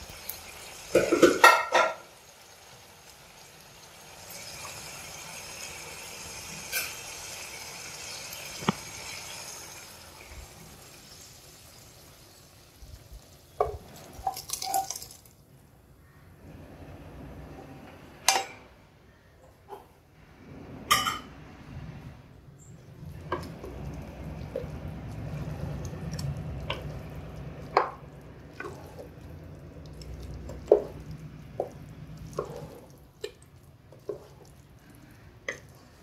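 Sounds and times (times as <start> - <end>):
pan and spoon clatter: 0.0 - 2.2, 6.6 - 9.2, 13.6 - 15.3, 23.2 - 34.6.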